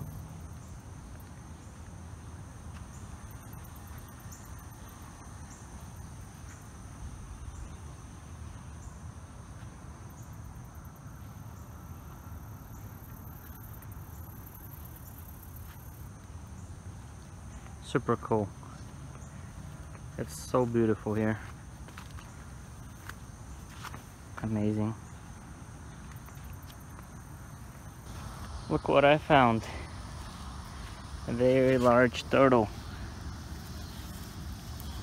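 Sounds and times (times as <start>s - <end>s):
insects chirring in trills: 0.0s - 35.0s
pulsing buzz: 28.1s - 35.0s.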